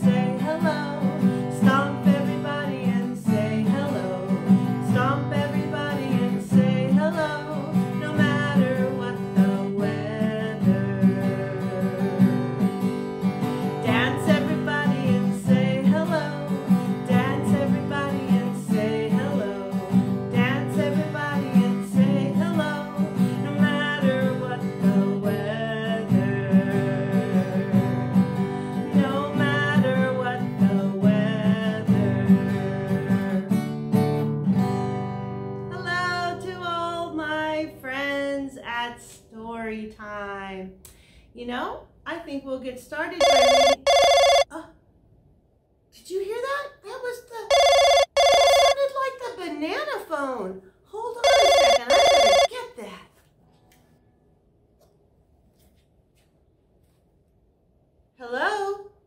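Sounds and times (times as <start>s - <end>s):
woman singing: 0.0s - 12.5s, 13.7s - 33.6s, 35.7s - 40.6s
acoustic guitar strumming: 0.0s - 35.7s.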